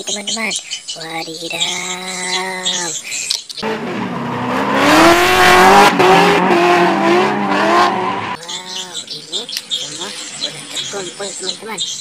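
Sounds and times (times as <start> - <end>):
car engines revving: 3.6 - 11.7.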